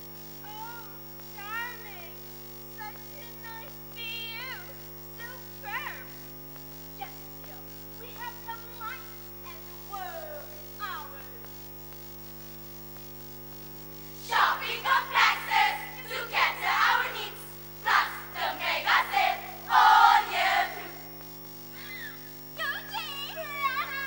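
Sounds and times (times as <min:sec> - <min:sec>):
electrical hum: 0:00.0 - 0:24.0
girls speaking in unison: 0:14.2 - 0:21.0, 0:22.6 - 0:24.0.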